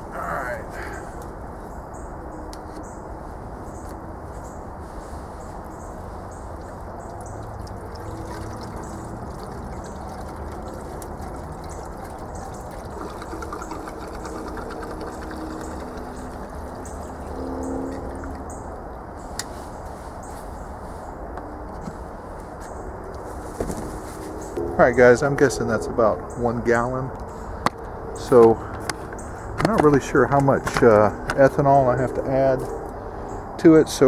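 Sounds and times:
liquid pouring into pipe: 0:07.0 - 0:18.5.

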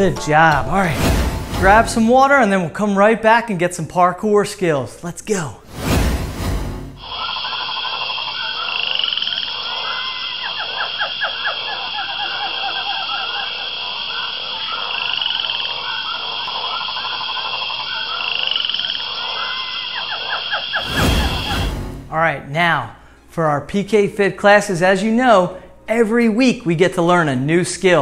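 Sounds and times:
steady high drone: 0:00.0 - 0:02.2
frogs croaking and trilling: 0:07.0 - 0:21.7.

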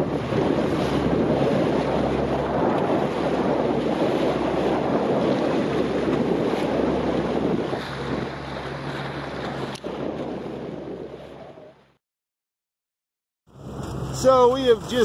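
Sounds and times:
wind buffeting microphone: 0:00.0 - 0:11.9
choppy water rushing: 0:00.0 - 0:12.0
outboard motor hum: 0:00.0 - 0:12.0, 0:13.5 - 0:15.0.

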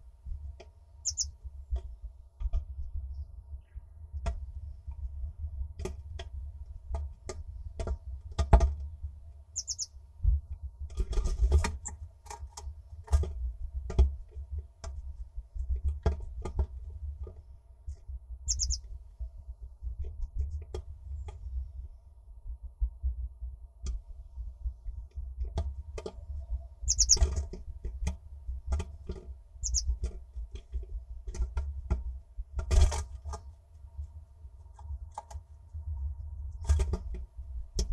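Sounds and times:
high-pitched bird calls: 0:01.0 - 0:01.3, 0:09.6 - 0:09.9, 0:18.5 - 0:18.8, 0:26.9 - 0:27.2, 0:29.6 - 0:29.9.

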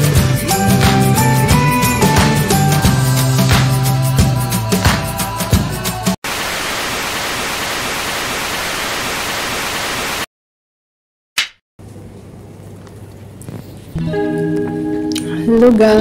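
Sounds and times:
intro music: 0:00.0 - 0:06.2
tv static hiss: 0:06.2 - 0:10.3
clapperboard snap: 0:11.4 - 0:11.6.

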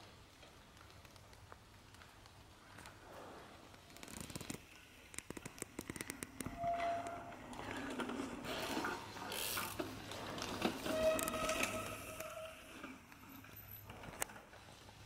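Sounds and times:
bike freehub ratchet clicking: 0:09.3 - 0:09.8.

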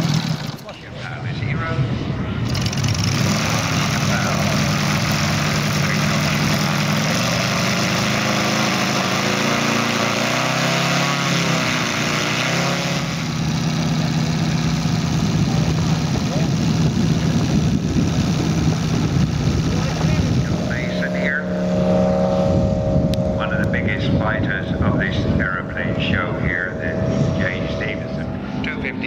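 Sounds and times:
model aircraft engine idling: 0:00.0 - 0:01.3, 0:02.4 - 0:10.7, 0:11.3 - 0:12.4, 0:13.1 - 0:21.6, 0:23.2 - 0:29.0.

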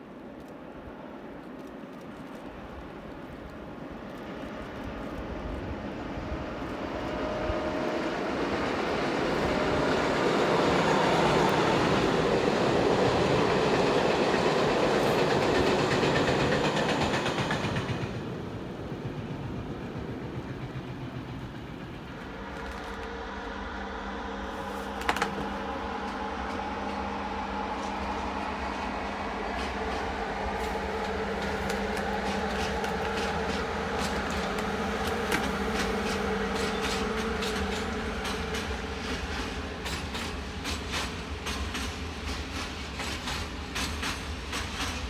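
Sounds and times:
electric locomotive humming whine: 0:00.0 - 0:45.0
freight train wheels clattering: 0:11.8 - 0:23.3, 0:24.8 - 0:45.0.

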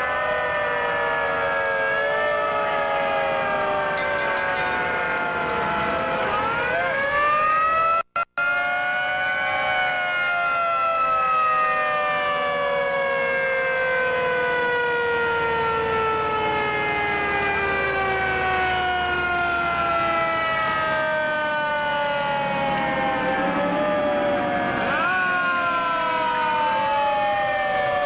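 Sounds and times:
fire truck siren winding down: 0:00.0 - 0:28.0
second siren tone: 0:01.1 - 0:11.3, 0:16.3 - 0:28.0.

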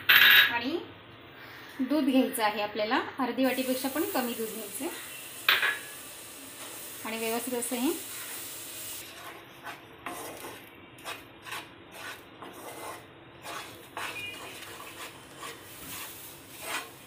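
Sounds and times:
wooden spatula scraping a pan: 0:09.0 - 0:17.0.

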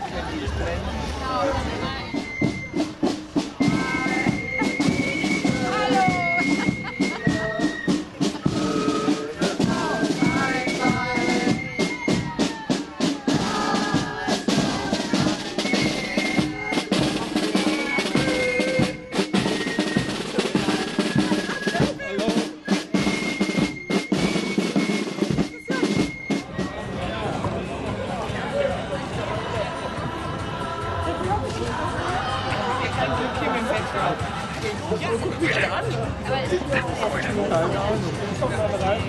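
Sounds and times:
held high notes: 0:02.0 - 0:27.0
snare and bass drums beating: 0:02.1 - 0:26.8.

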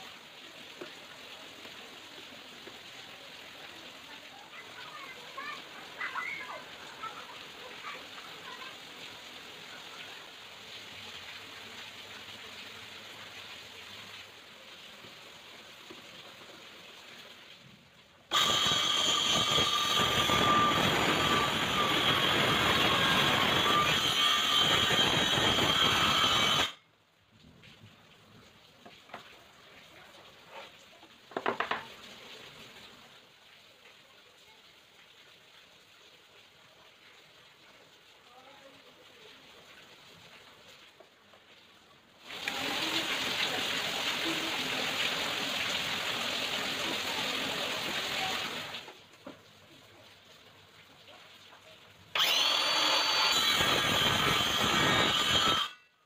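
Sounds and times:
circular saw cutting plywood: 0:18.3 - 0:26.8, 0:52.2 - 0:55.9.

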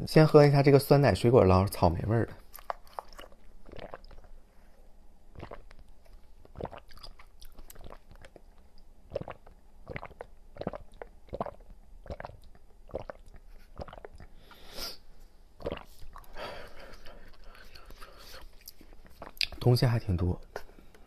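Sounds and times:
chewing: 0:02.5 - 0:04.3, 0:05.4 - 0:14.3, 0:15.6 - 0:19.6
sucking drink through a straw: 0:02.6 - 0:04.3, 0:05.3 - 0:08.4, 0:09.1 - 0:15.0, 0:15.6 - 0:18.4.

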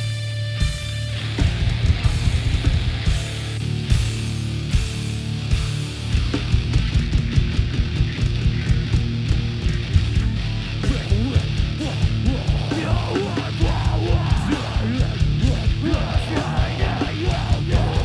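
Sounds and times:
distorted electric guitar: 0:00.0 - 0:18.0
pounding drums: 0:06.2 - 0:18.0.

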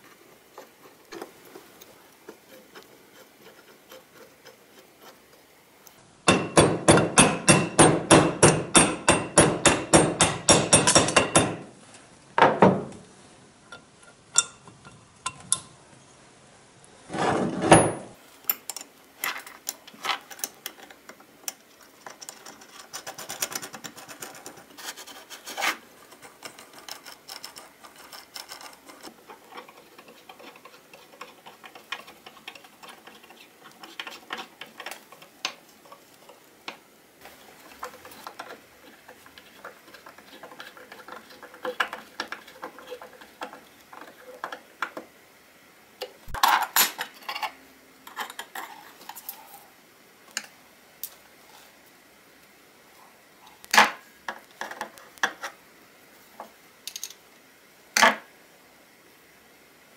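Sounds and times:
handling noises: 0:17.1 - 0:45.1.

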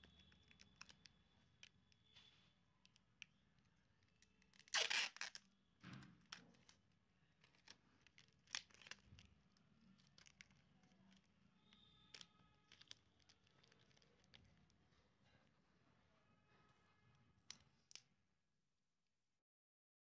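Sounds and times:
tape crinkling: 0:00.0 - 0:15.0
adhesive tape ripping: 0:04.5 - 0:05.5, 0:07.6 - 0:09.2.

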